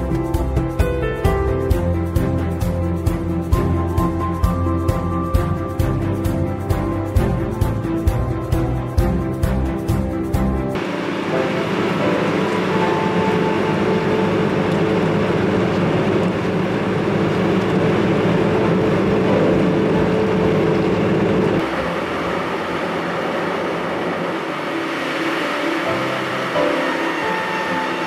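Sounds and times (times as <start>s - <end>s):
drilling rig engine and hydraulics: 7.2s - 28.0s.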